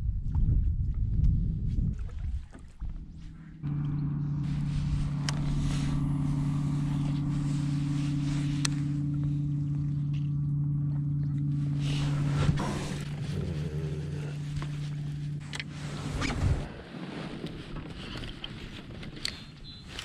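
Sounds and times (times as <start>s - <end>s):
electric motor humming: 3.6s - 16.0s.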